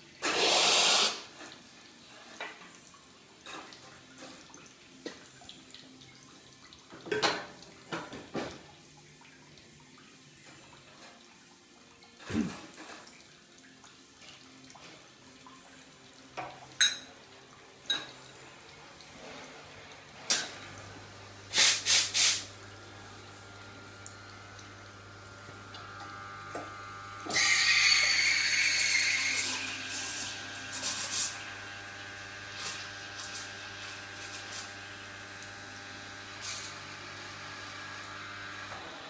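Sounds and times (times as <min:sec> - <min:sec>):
espresso steam wand hissing: 0:00.2 - 0:01.3, 0:21.5 - 0:22.5, 0:27.2 - 0:31.6, 0:32.2 - 0:37.2.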